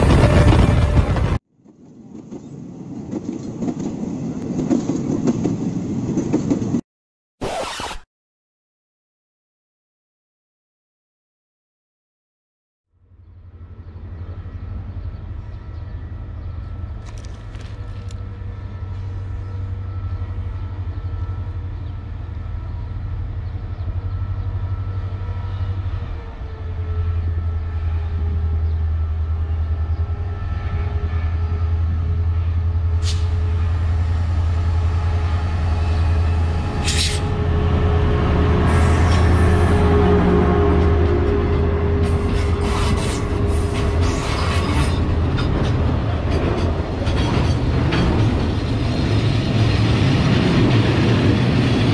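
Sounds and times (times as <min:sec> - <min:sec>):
diesel locomotive engine hum: 0:00.0 - 0:06.8, 0:13.0 - 0:51.9
short sharp noises: 0:07.4 - 0:08.1.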